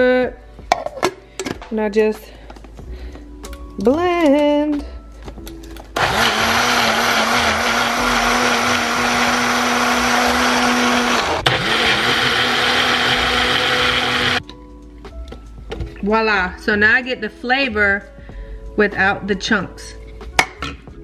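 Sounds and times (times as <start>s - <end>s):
blender running: 6.0s - 14.4s.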